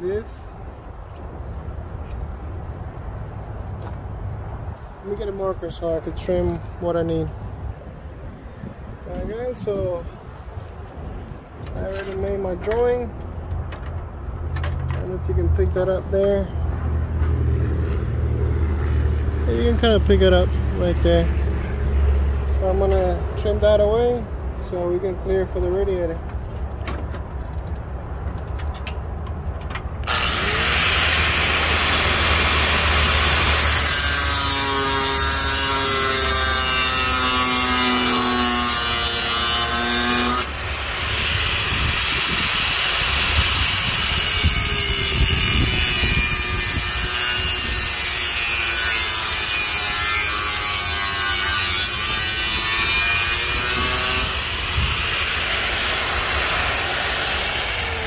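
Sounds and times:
angle grinder cutting: 30.0 - 58.0.

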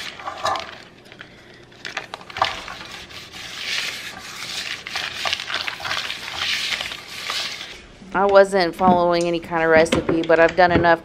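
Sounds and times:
paper wiping inside metal pan: 2.4 - 7.8.

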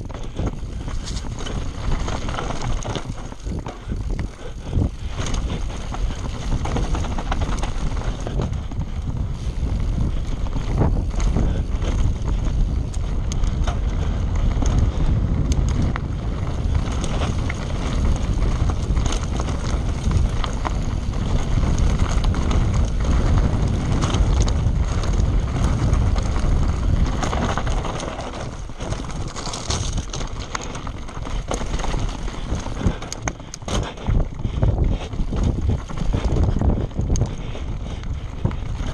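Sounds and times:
bike clicking and rattling: 0.0 - 38.9
wind on microphone: 0.0 - 38.9
tyres crunching over stones: 16.3 - 33.8.

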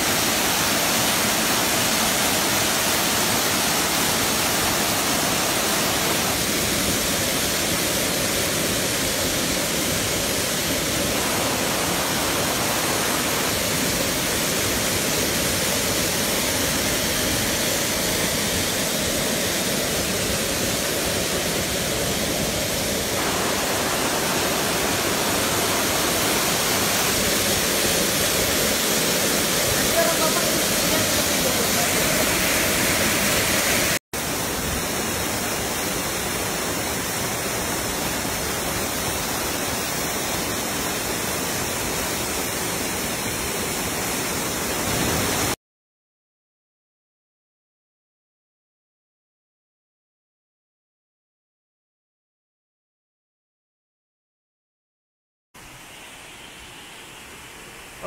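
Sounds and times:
waterfall rushing: 0.0 - 45.6.

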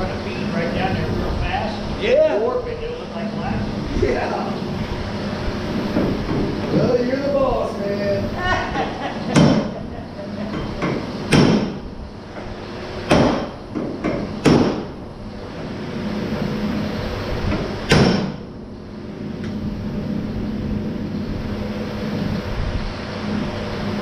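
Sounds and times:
low machine hum: 0.0 - 24.0
loud sharp knocks: 5.9 - 6.8, 9.3 - 9.8, 10.5 - 11.8, 13.0 - 15.0, 17.5 - 18.4.

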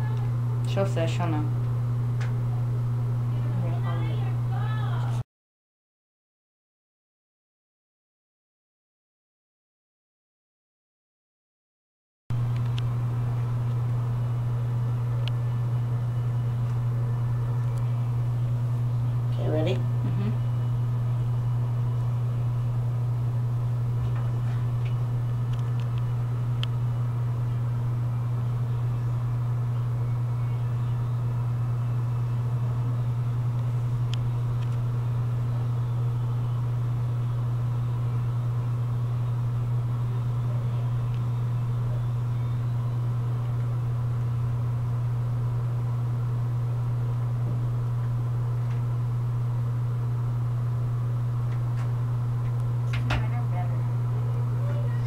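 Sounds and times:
steady low hum: 0.0 - 5.2, 12.3 - 55.0.

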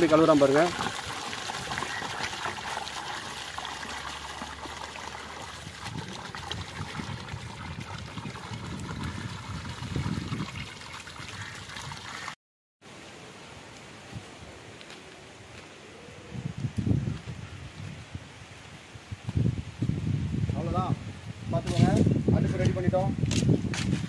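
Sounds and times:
water pouring into a basin: 0.0 - 12.4.

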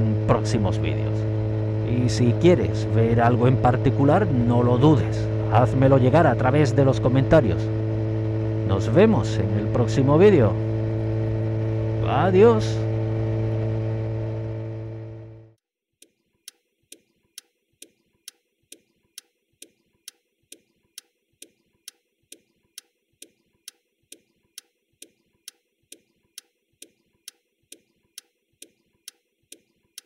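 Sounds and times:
faint steady ticking: 16.0 - 30.0.

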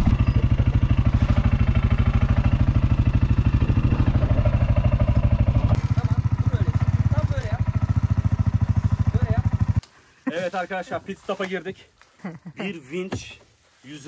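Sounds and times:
engine idling: 0.0 - 10.0.

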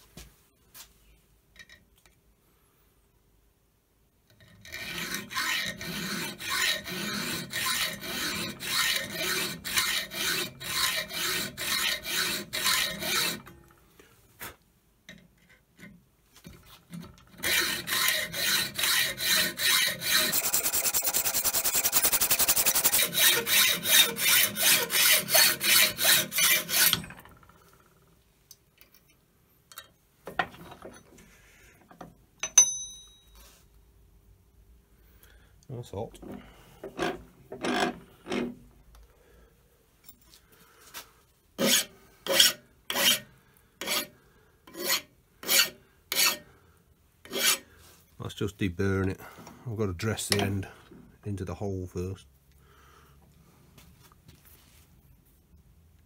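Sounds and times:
hacksaw cutting metal: 4.4 - 13.6, 17.3 - 27.2, 41.6 - 44.1, 44.7 - 46.5, 47.2 - 47.6
short metallic ring: 32.4 - 33.5.

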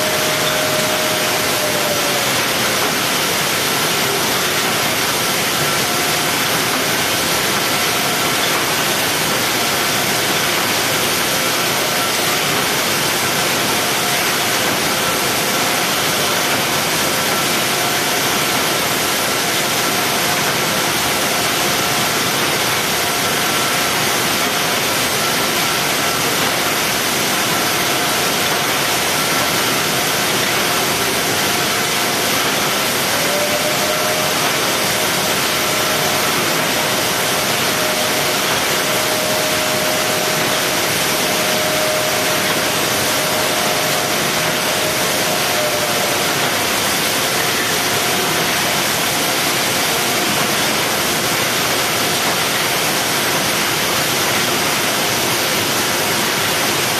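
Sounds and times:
faint machine whining: 0.0 - 9.7
factory machinery hissing: 0.0 - 56.9.

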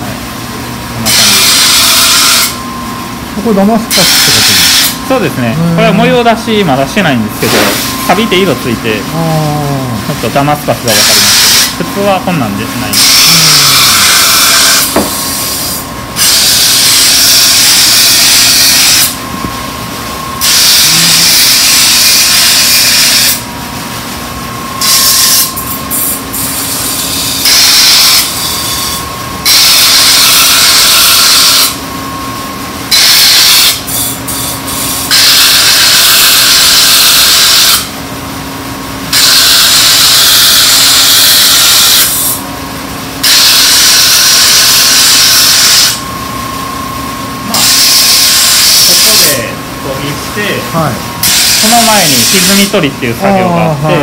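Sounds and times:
sharpening wheel motor hum: 0.9 - 2.6, 3.4 - 6.4, 10.9 - 11.8, 12.8 - 19.5, 20.3 - 23.5, 24.8 - 31.9, 32.9 - 38.0, 39.0 - 42.5, 43.2 - 46.0, 47.4 - 49.5, 51.2 - 54.0
knife grinding hiss: 1.0 - 2.6, 3.9 - 5.0, 12.9 - 19.2, 20.4 - 23.5, 24.8 - 31.8, 33.0 - 37.9, 39.1 - 42.4, 43.2 - 46.0, 47.5 - 49.4, 51.2 - 52.7.

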